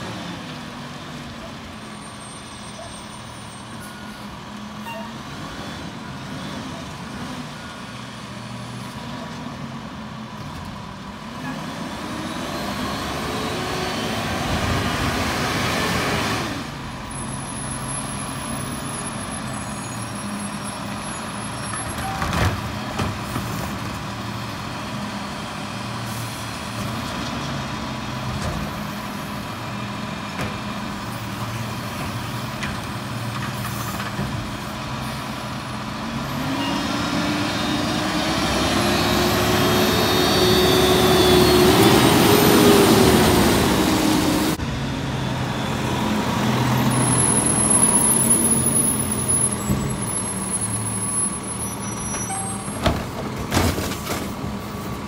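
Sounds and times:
garbage truck diesel engine: 0:00.0 - 0:55.0.

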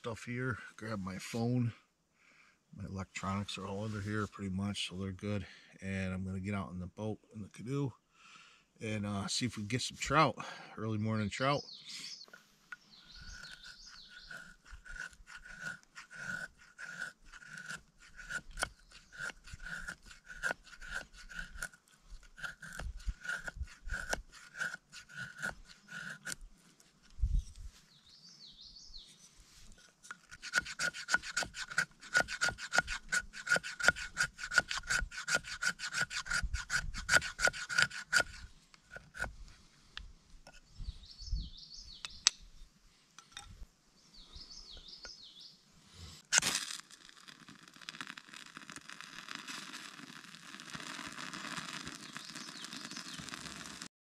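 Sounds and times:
knife scraping wood: 0:12.2 - 0:27.8, 0:29.1 - 0:39.6, 0:46.2 - 0:53.9.

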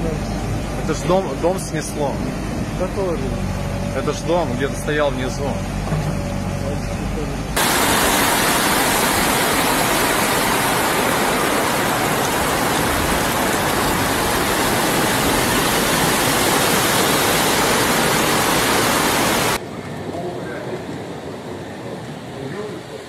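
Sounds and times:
floodwater rushing: 0:07.6 - 0:23.0.

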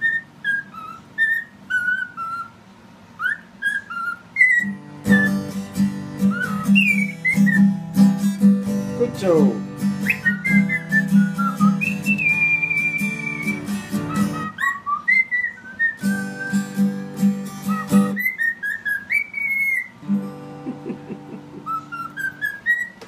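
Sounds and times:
cockatiel whistling a tune: 0:00.0 - 0:07.8, 0:10.0 - 0:20.0, 0:21.5 - 0:23.0
acoustic guitar picking: 0:04.6 - 0:23.0.

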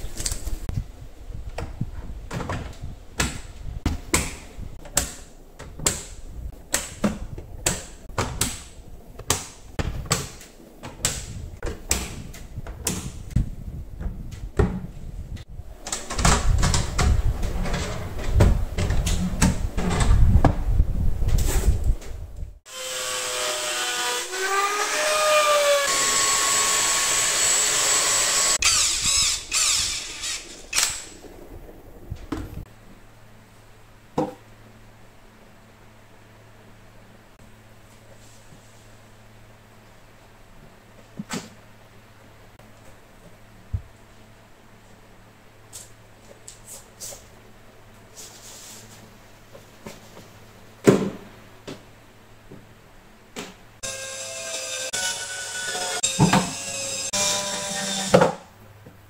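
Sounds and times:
cordless drill whining: 0:22.7 - 0:30.9.

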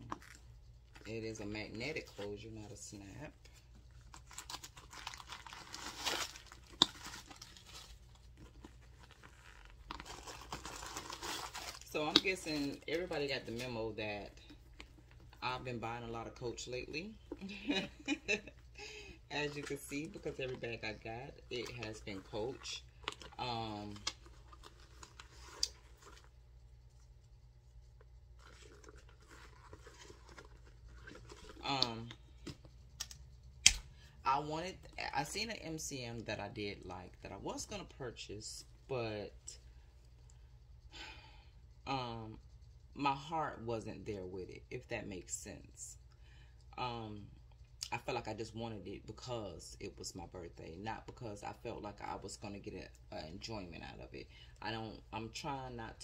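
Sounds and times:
low steady hum: 0:00.0 - 0:56.0
tissue paper rustling: 0:04.0 - 0:13.9, 0:28.3 - 0:31.8
handbag rustling and tapping: 0:28.4 - 0:31.6.

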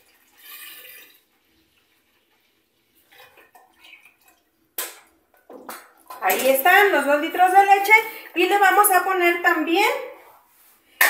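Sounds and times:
milk pouring into pot: 0:00.0 - 0:06.1.

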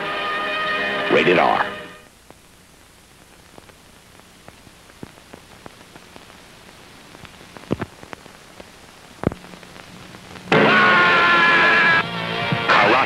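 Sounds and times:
faint hiss: 0:01.3 - 0:10.5
low steady hum: 0:02.0 - 0:13.0
film crackle clicks and pops: 0:02.1 - 0:12.0.

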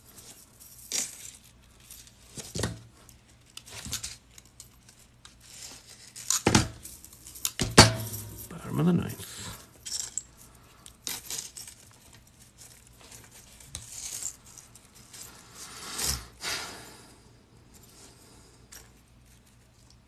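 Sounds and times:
chainmail rings clinking: 0:00.0 - 0:02.3, 0:05.8 - 0:15.4.

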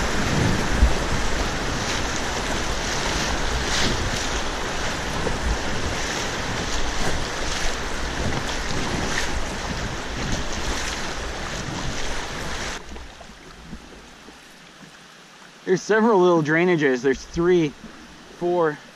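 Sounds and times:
wind rumble on microphone: 0:00.0 - 0:14.1
whitewater rushing: 0:00.0 - 0:14.2, 0:15.6 - 0:18.9.

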